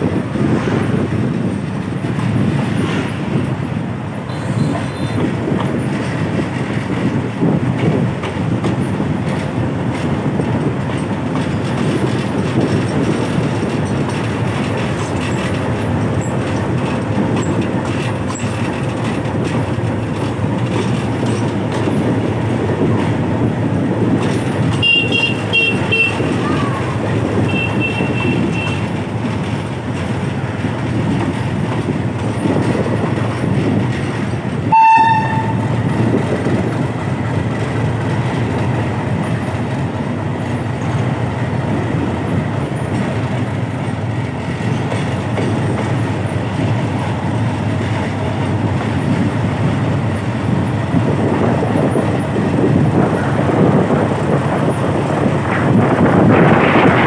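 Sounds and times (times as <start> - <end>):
train engine and wheels rumbling: 0.0 - 57.0
train horn toot: 4.3 - 5.2, 24.8 - 26.4, 27.4 - 28.9, 34.7 - 35.7.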